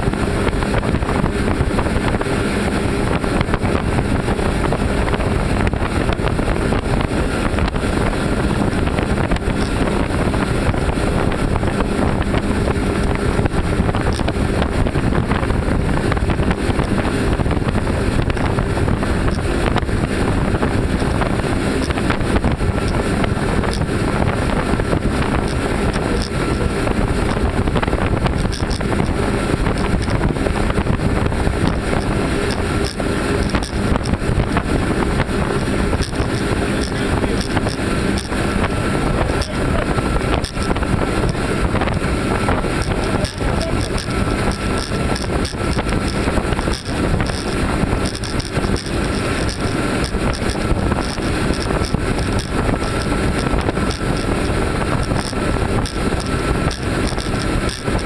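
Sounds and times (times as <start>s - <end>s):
outboard motors running: 0.0s - 58.0s
wake rushing against hull: 0.0s - 58.0s
wind buffeting microphone: 0.0s - 58.0s.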